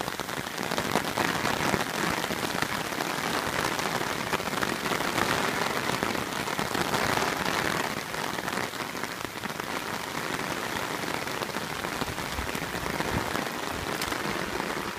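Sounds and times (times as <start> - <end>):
steady rain falling: 0.0 - 14.9.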